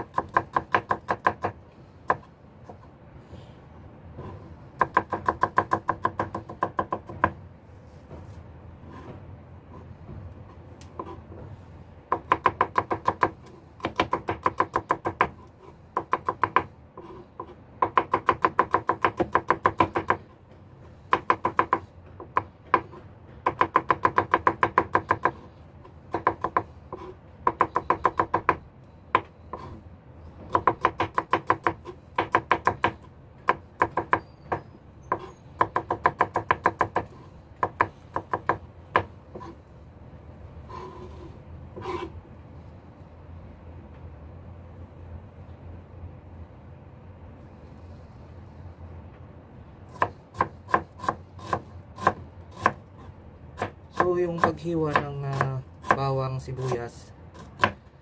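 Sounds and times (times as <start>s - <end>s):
knife chopping on cutting board: 49.9s - 52.8s, 53.6s - 56.8s, 57.4s - 57.8s.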